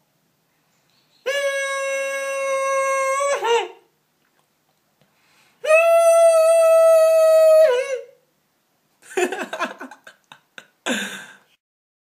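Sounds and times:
short whining vocal sounds: 0:01.2 - 0:03.9
person humming a high note: 0:01.3 - 0:03.8.

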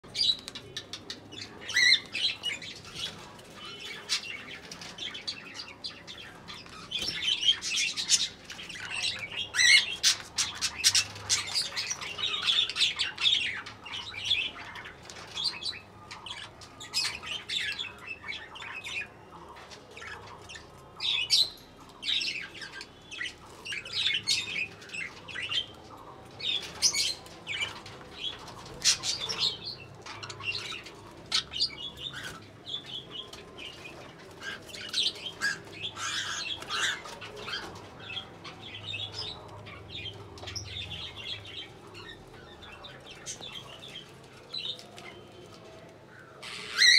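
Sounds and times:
budgerigars chirping: 0:26.4 - 0:43.9, 0:46.4 - 0:46.9.

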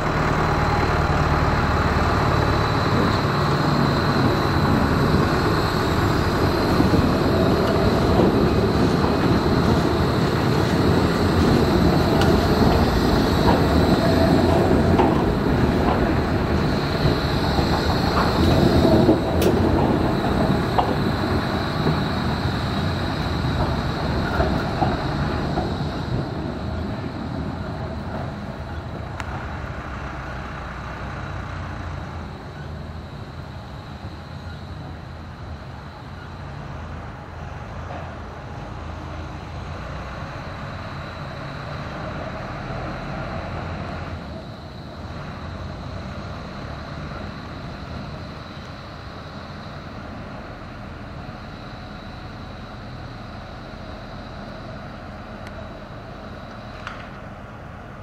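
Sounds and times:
faint high whine: 0:00.0 - 0:58.0
heavy machinery rumble: 0:00.0 - 0:58.0
small click: 0:56.5 - 0:57.2.

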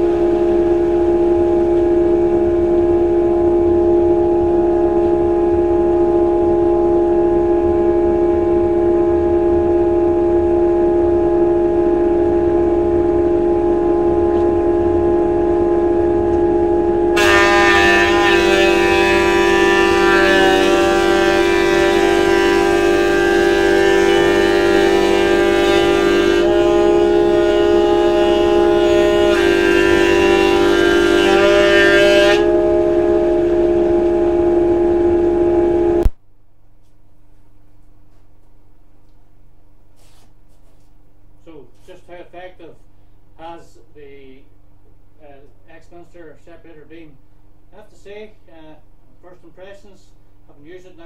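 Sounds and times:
chip extractor droning: 0:00.0 - 0:36.2
thickness planer humming: 0:00.0 - 0:36.2
planer cutting board hiss: 0:40.0 - 0:40.8.

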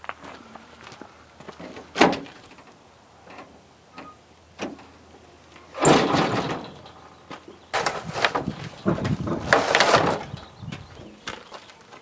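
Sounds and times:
tailgate swinging open: 0:01.6 - 0:02.7, 0:05.7 - 0:07.0.

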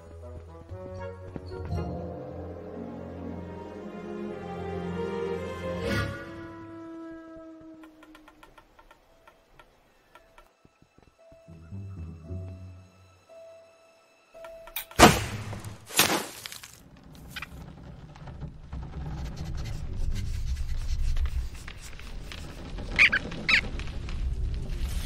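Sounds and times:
short high squeaks: 0:22.2 - 0:23.7.

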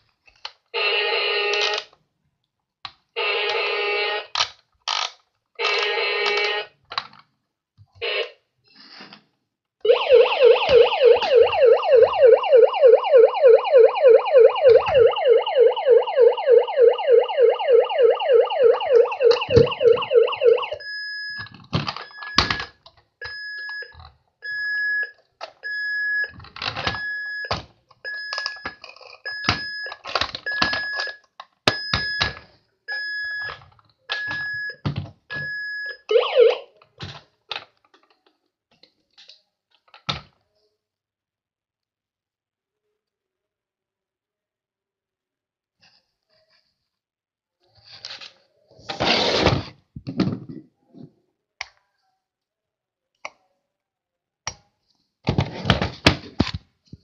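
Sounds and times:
fast warbling toy siren: 0:09.9 - 0:20.8, 0:36.1 - 0:36.7
high repeating beep: 0:09.9 - 0:21.0.

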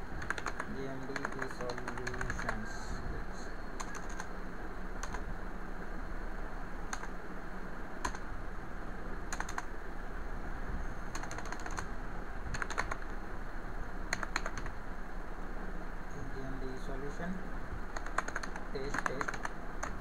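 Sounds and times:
steady background hiss: 0:00.0 - 0:20.0
keyboard keys clicking: 0:00.2 - 0:02.6, 0:03.8 - 0:04.3, 0:06.9 - 0:07.1, 0:09.3 - 0:09.7, 0:11.1 - 0:11.9, 0:12.5 - 0:13.1, 0:14.1 - 0:14.7, 0:18.0 - 0:20.0.

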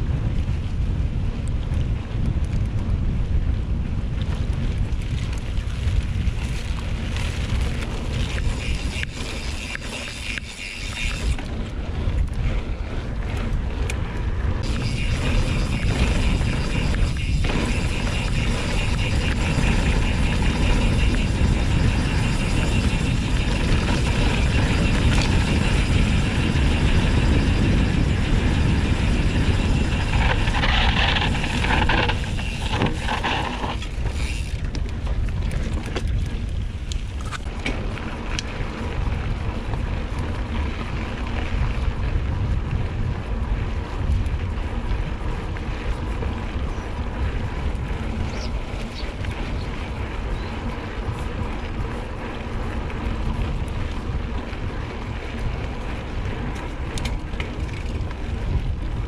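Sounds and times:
bike rattling over bumps: 0:00.0 - 0:59.0
bike tyre noise on dirt: 0:00.0 - 0:59.0
wind buffeting microphone: 0:00.0 - 0:59.0
scattered clicks: 0:29.4 - 0:38.6, 0:56.5 - 0:58.2.

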